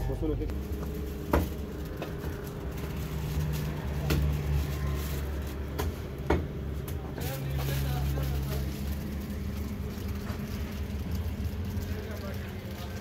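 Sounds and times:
low motor rumble: 0.0 - 13.0.

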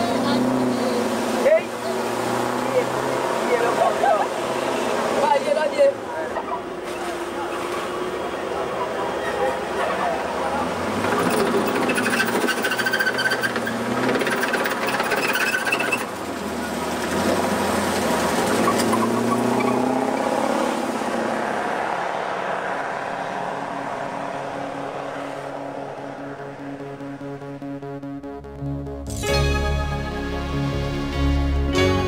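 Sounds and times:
diesel engine under load: 0.0 - 27.8
tracks clattering and squealing: 6.3 - 17.2, 18.4 - 20.0.

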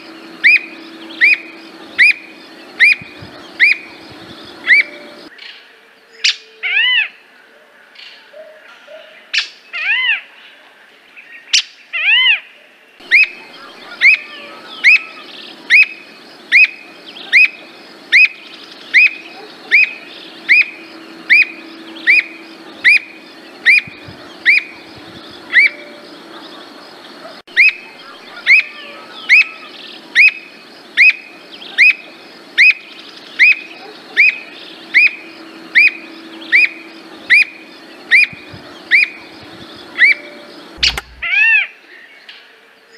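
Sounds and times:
bird calling sharp notes: 0.0 - 5.3, 13.0 - 26.2, 32.6 - 41.7.

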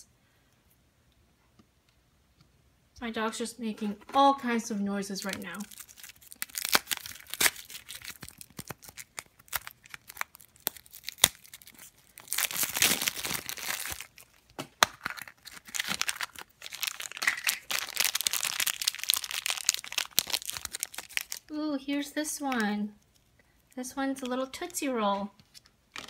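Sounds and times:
plastic packaging crinkling: 5.1 - 21.5, 24.2 - 26.0
plastic tearing: 5.2 - 21.5, 25.4 - 26.0.

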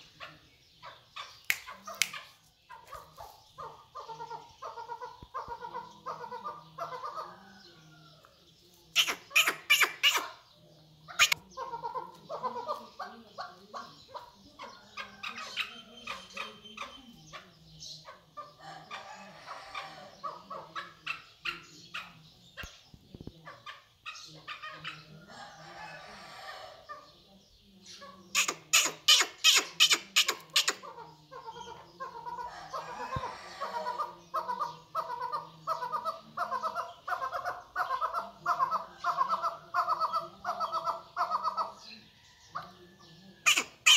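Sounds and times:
partridge clucking call: 0.0 - 7.4, 11.1 - 18.6, 28.0 - 41.8, 43.4 - 43.9.

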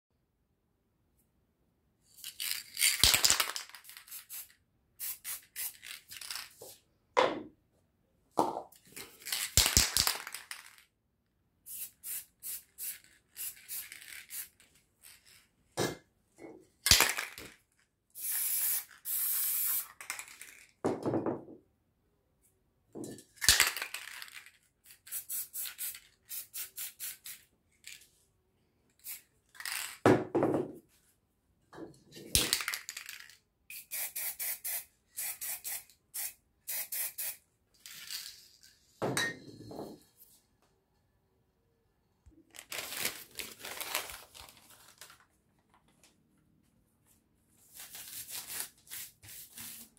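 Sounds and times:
spray cans clicking and knocking: 2.2 - 7.3, 8.4 - 10.8, 16.9 - 17.6, 32.3 - 33.4
aerosol spray cans hissing: 2.5 - 6.4, 11.7 - 14.6, 18.2 - 20.2, 24.9 - 27.5, 33.7 - 37.4, 47.8 - 49.9.

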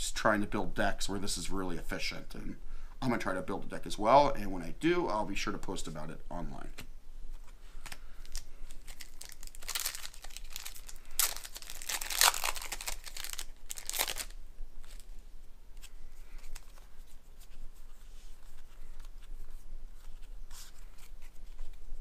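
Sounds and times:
foil wrapper tearing and crinkling: 7.8 - 15.0.

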